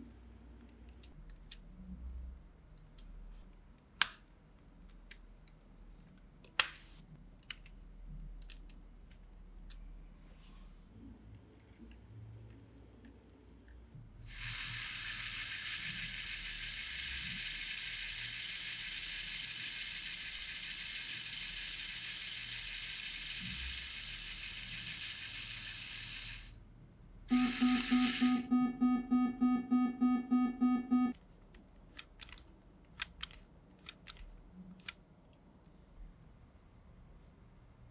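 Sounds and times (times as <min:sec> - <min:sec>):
electric motor and gears whirring: 0:14.3 - 0:26.6
pulsing buzz: 0:27.3 - 0:31.1.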